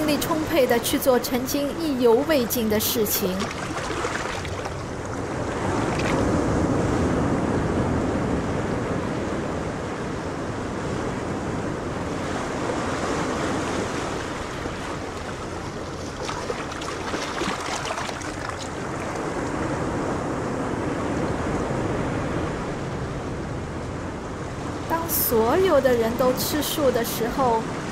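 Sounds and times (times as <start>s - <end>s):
water rushing: 0.0s - 6.6s, 11.7s - 19.9s
water splashing: 2.8s - 6.4s, 12.4s - 19.5s.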